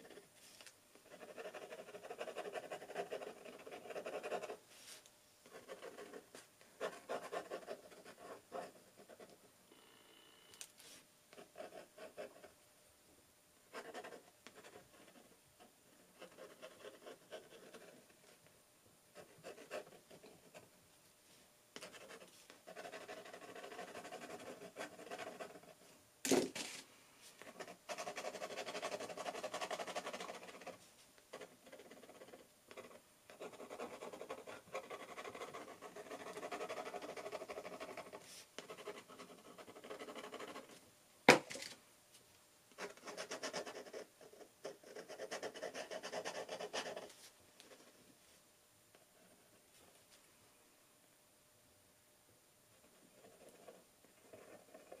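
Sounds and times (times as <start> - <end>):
pen nib scratching paper: 1.0 - 4.6, 21.8 - 25.8, 27.4 - 40.7, 42.8 - 47.9.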